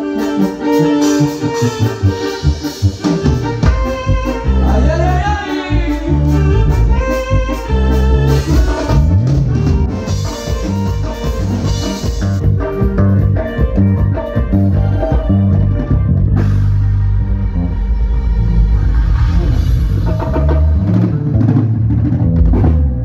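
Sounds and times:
electronic keyboard organ tone: 0.0 - 18.4
drum kit: 0.0 - 23.0
electric bass: 0.0 - 23.0.

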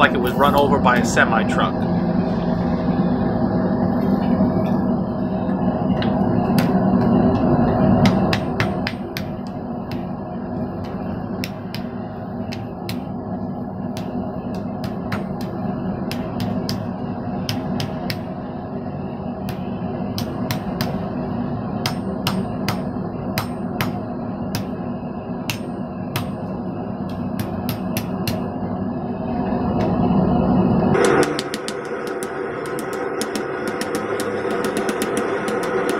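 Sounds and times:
steady low hum: 0.0 - 35.9
hammer striking metal on anvil: 8.0 - 10.1, 19.5 - 21.0, 21.8 - 24.0, 24.6 - 24.8, 25.5 - 26.5, 31.0 - 35.9.

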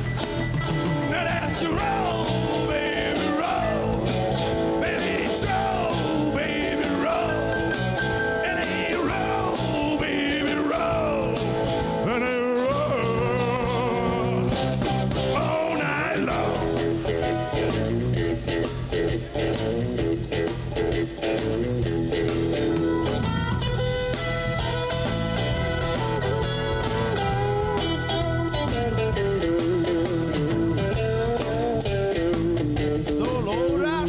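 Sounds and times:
wailing sliding lead melody: 0.0 - 14.6, 22.4 - 32.4
live rock band playing: 0.0 - 34.0.

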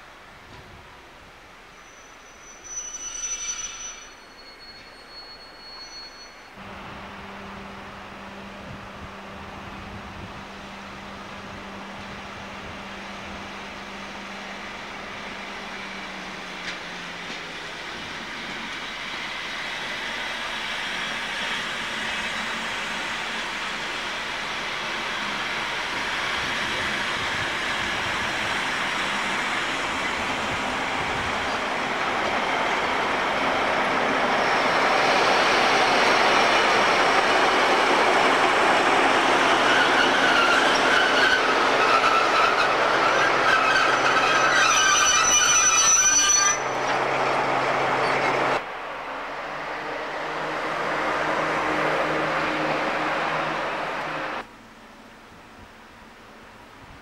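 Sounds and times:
diesel passenger train running: 0.0 - 56.8
metallic wheel squeal: 1.8 - 6.6, 39.6 - 47.4.

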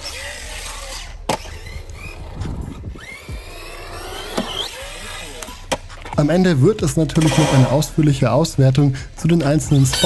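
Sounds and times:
electric motor whining: 0.7 - 5.6.

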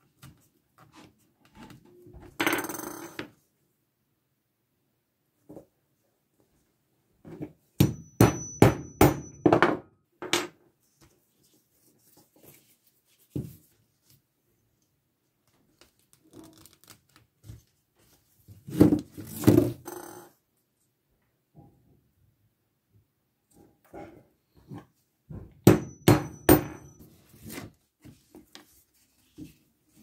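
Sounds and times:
mallet knocking leather punch: 7.8 - 9.4, 25.6 - 26.9.

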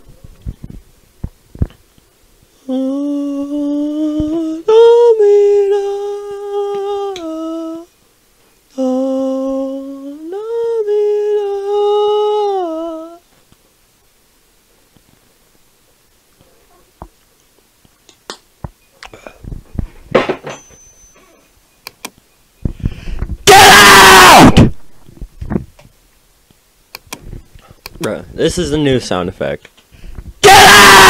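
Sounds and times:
person humming: 2.6 - 7.9, 8.7 - 13.2.

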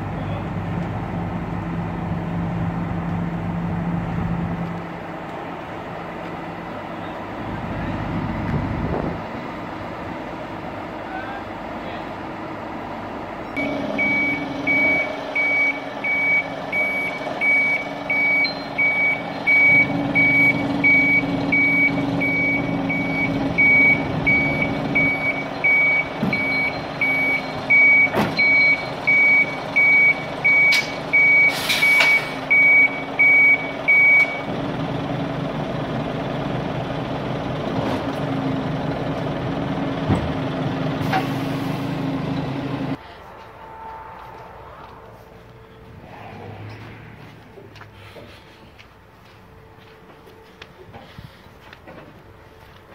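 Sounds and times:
diesel engine running at low revs: 0.0 - 43.6
truck reverse alarm beeping: 13.6 - 34.8.

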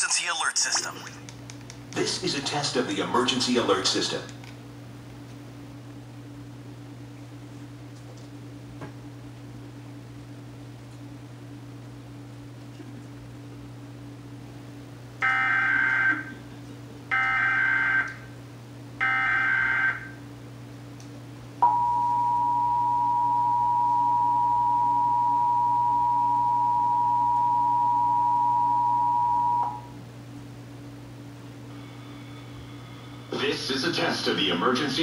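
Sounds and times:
two-tone attention signal: 21.6 - 29.9.

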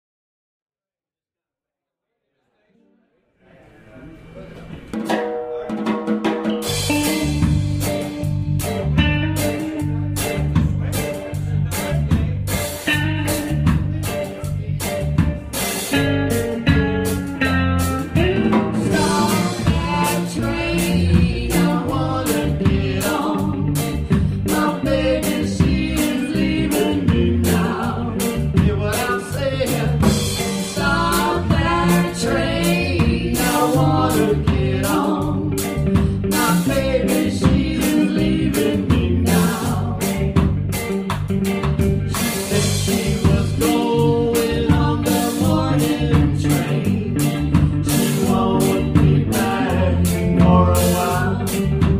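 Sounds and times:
band playing: 4.5 - 51.9
woman singing: 18.2 - 40.2, 42.1 - 51.6.

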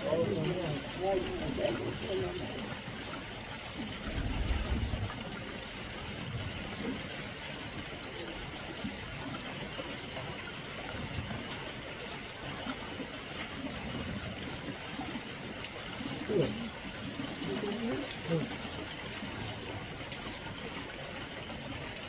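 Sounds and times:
low rumble: 4.0 - 5.4.

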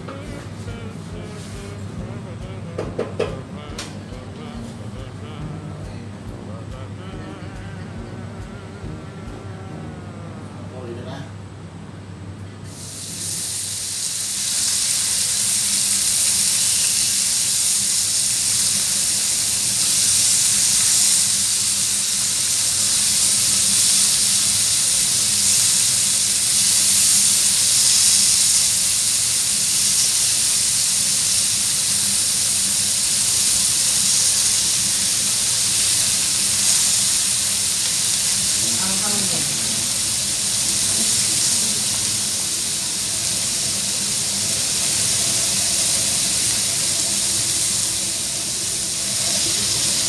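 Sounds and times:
fish sizzling on a grill pan: 0.6 - 1.8, 12.7 - 50.0.

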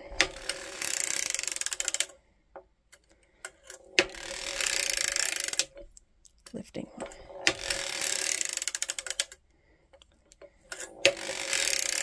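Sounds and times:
knitting machine needles clicking: 0.0 - 12.0.

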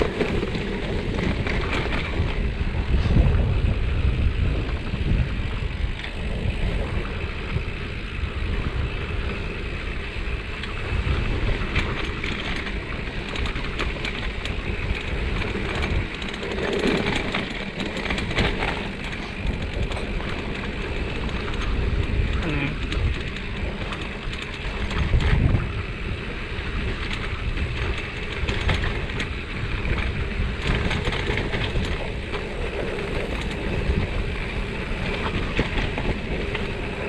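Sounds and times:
bicycle tyres rumbling: 0.0 - 37.0
bike rattles and clicks: 0.0 - 37.0
wind on microphone: 0.0 - 37.0.

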